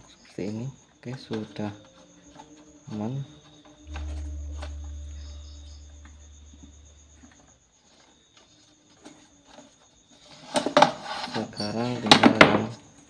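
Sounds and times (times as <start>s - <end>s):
crickets chirring: 0.0s - 7.7s, 9.2s - 13.0s
low rumble: 1.7s - 7.5s.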